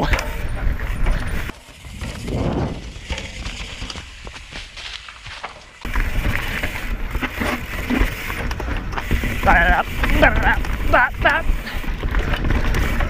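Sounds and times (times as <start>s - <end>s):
wind rumble on microphone: 0.0s - 3.2s
bike rattling over rocks: 0.0s - 13.0s.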